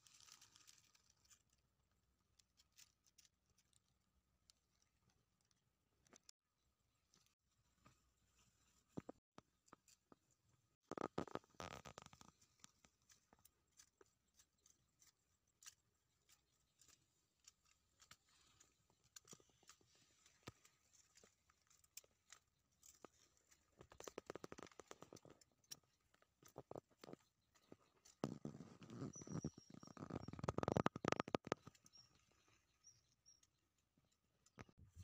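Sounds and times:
rustling of dry leaves: 0:00.0 - 0:05.1, 0:06.9 - 0:33.0
faint scattered clicks: 0:11.2 - 0:32.2.

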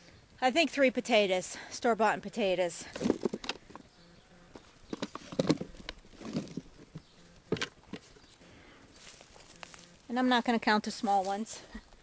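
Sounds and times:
potatoes thudding onto soil: 0:02.9 - 0:03.8.

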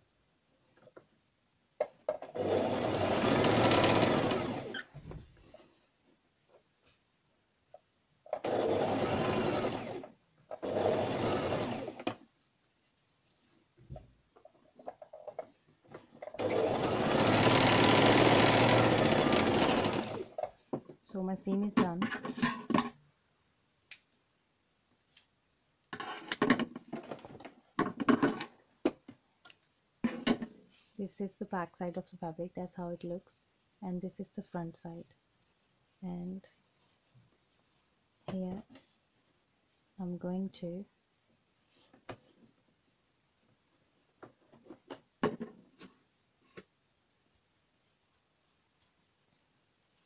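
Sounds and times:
fabric rustling: 0:35.3 - 0:40.0.

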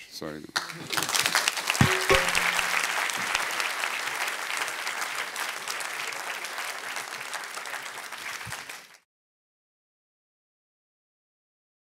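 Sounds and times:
audience applauding: 0:00.6 - 0:09.0.

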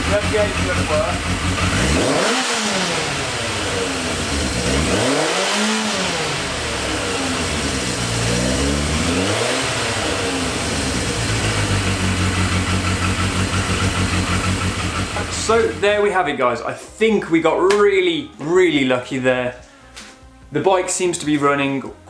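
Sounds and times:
motorcycle engine revving: 0:00.0 - 0:16.0
engine idling: 0:00.0 - 0:16.2.

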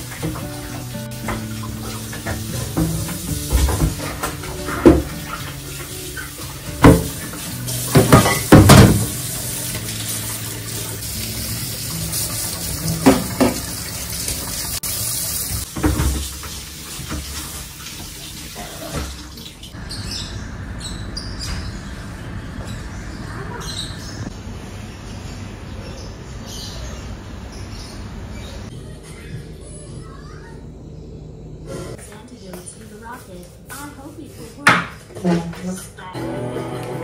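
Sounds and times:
tap water running into sink: 0:00.0 - 0:19.8
dishes clanking: 0:06.2 - 0:09.1.

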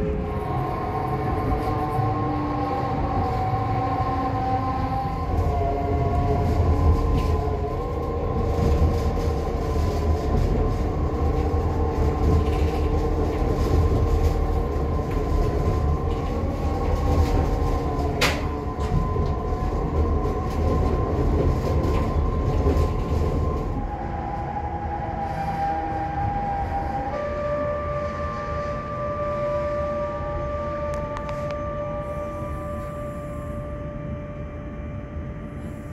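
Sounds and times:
railcar rumbling: 0:00.0 - 0:35.9.

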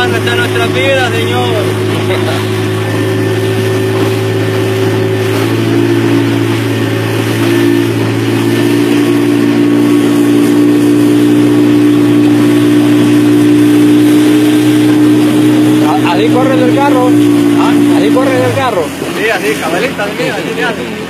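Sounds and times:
outboard motor running: 0:00.0 - 0:21.0.

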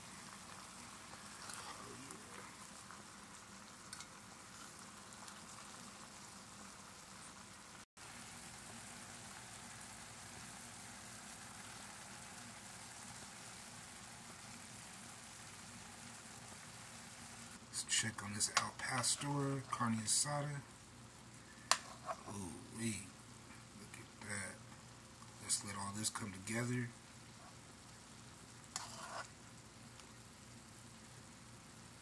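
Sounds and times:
food sizzling in skillets: 0:00.0 - 0:32.0.

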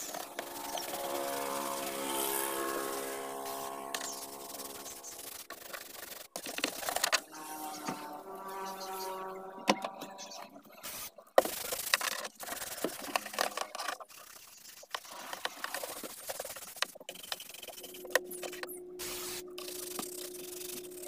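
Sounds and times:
steady hum: 0:00.0 - 0:10.6, 0:17.1 - 0:21.0
sponge scrubbing plastic: 0:00.0 - 0:21.0.

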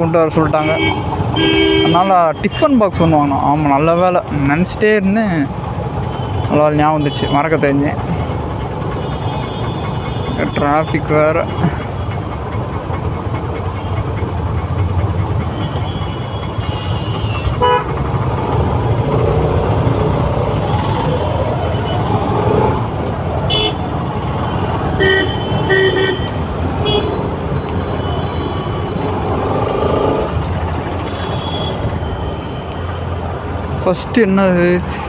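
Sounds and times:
traffic rumble: 0:00.0 - 0:35.0
vehicle horn toots: 0:00.6 - 0:02.1, 0:15.6 - 0:18.0, 0:23.5 - 0:23.9, 0:24.6 - 0:27.3.

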